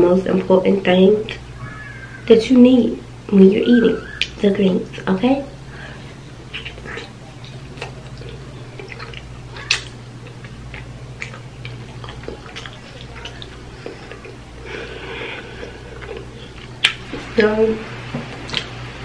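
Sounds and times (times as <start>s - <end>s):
steady low hum: 0.0s - 19.0s
person licking and chewing: 6.4s - 17.5s, 18.4s - 18.8s
wet mouth smacks and clicks: 6.5s - 13.6s, 16.7s - 17.1s, 18.4s - 18.8s.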